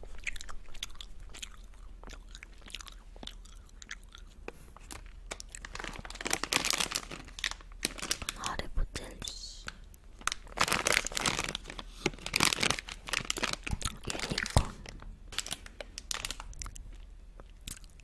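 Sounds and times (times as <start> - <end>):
plastic bags crinkling: 4.8 - 8.6, 9.3 - 17.0.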